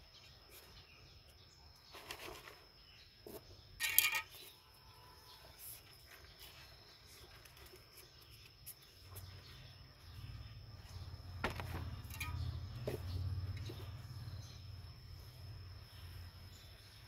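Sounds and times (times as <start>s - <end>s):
steady high-pitched whine: 0.0s - 17.0s
plastic basin knocking and scraping: 11.4s - 13.9s.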